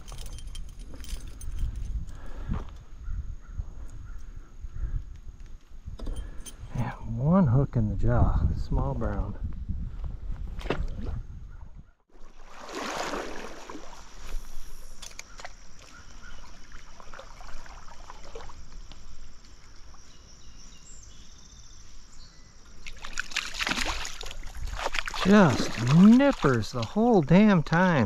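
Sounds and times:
water splashing and sloshing: 12.1s - 20.1s, 22.7s - 27.4s
stream water running: 12.1s - 20.6s, 22.6s - 28.0s.

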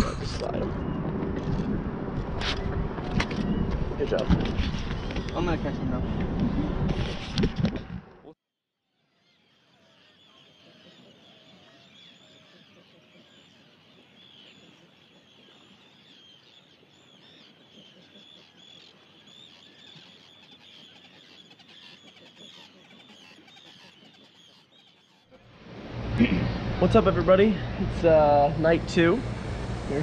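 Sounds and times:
faint birds chirping: 8.9s - 25.5s.

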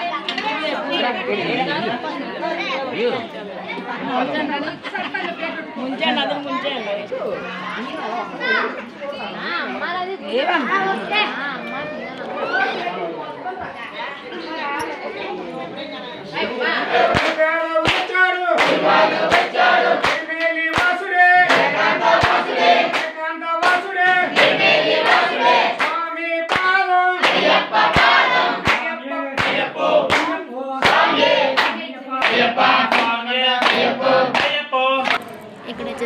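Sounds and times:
group singing devotional song: 16.4s - 35.2s
hand claps: 17.1s - 24.5s, 25.8s - 35.2s.

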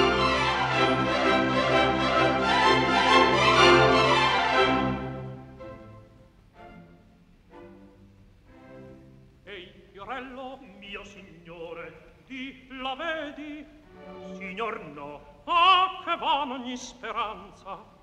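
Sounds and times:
operatic singing: 0.0s - 5.4s, 9.5s - 17.9s
orchestral accompaniment: 0.0s - 9.6s.

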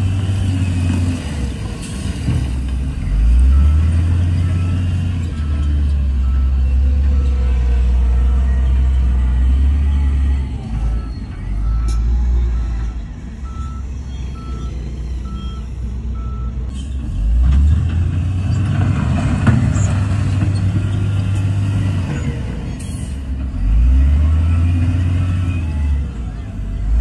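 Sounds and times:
diesel engine revving: 0.0s - 27.0s
reverse alarm beeping: 10.1s - 16.6s.

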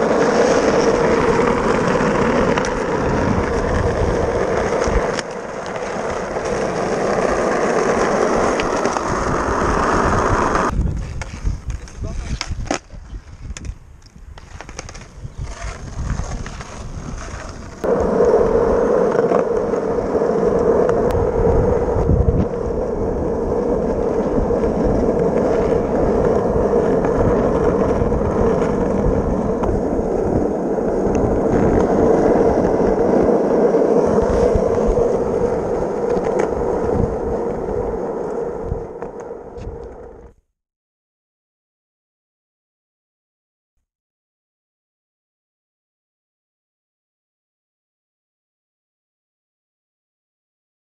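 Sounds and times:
skateboard wheels rolling on asphalt: 0.0s - 40.4s.

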